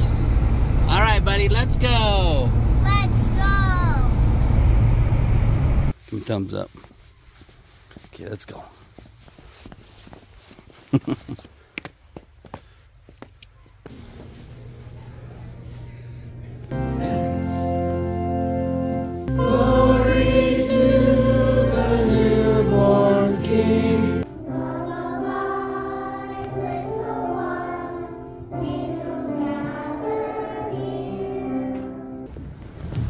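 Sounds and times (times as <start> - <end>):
sustained low accompaniment: 14.6 - 32.5
children's choir singing: 19.2 - 32.3.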